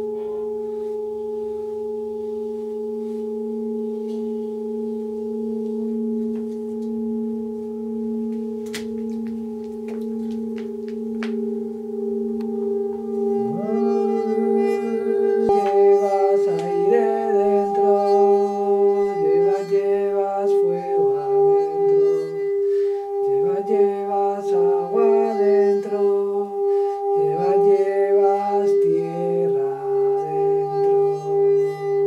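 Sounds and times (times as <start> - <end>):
singing bowl ringing: 0.0 - 32.0
low voice humming: 12.0 - 31.5.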